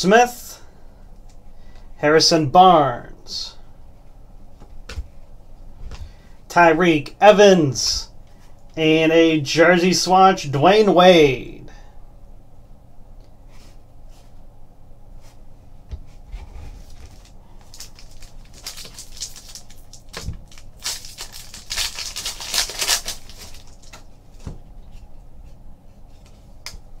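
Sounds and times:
foil wrapper tearing and crinkling: 16.8 - 24.1.

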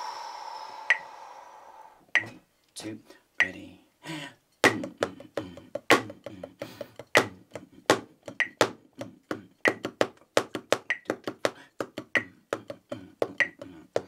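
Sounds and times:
drumsticks tapping practice pad: 2.2 - 2.4, 4.6 - 14.0
metronome beeps: 8.4 - 8.7.

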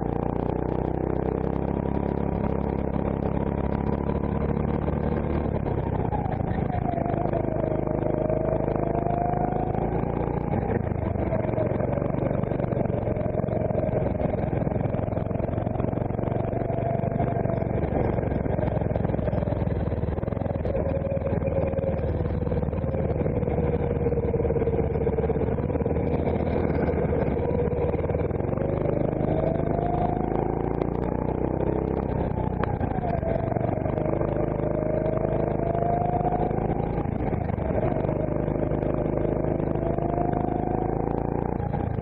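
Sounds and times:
go-kart engine revving: 0.0 - 42.0.

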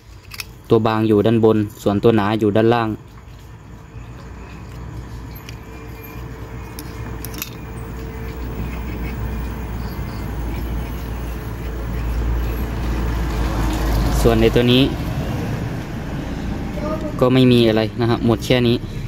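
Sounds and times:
small metal parts clicking: 0.0 - 0.7, 4.5 - 12.9
vehicle engine rumble: 0.0 - 19.0.

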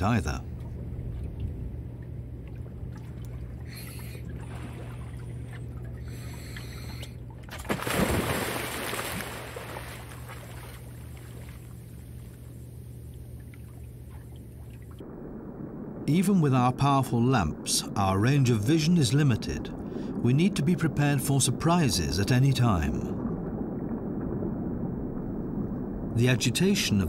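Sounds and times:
steady low hum: 0.0 - 27.0
rush of bubbles: 2.5 - 12.5
diver splashing into water: 7.5 - 12.3.

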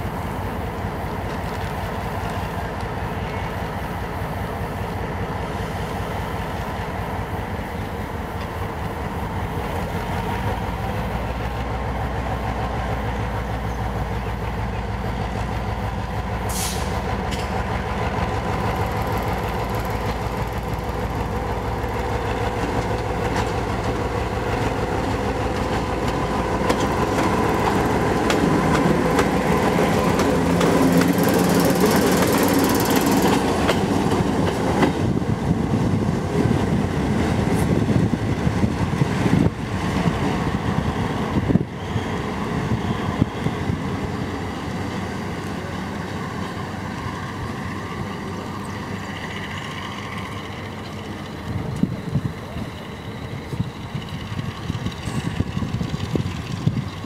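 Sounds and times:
locomotive engine throbbing: 5.1 - 57.0
wheels clicking over rail joints: 17.0 - 38.1, 44.6 - 57.0.

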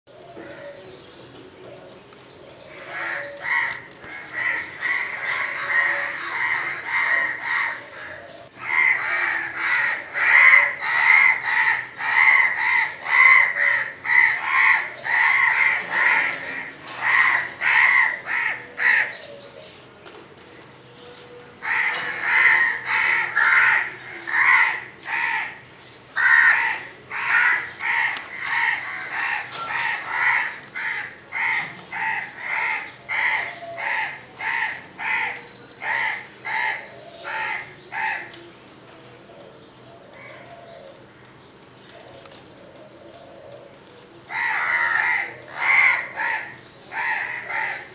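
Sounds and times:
crows cawing harshly: 2.7 - 19.2, 21.6 - 38.4, 44.3 - 47.9.

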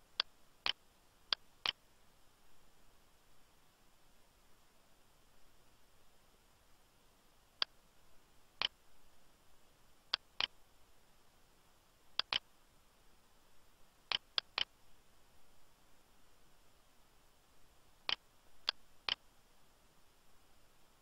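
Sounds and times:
computer mouse button clicking: 12.2 - 12.4.

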